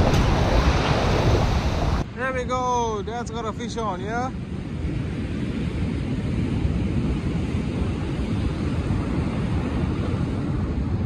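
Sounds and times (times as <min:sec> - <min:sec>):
surf breaking on beach: 0:00.0 - 0:02.5
wind rumbling on microphone: 0:00.0 - 0:11.0.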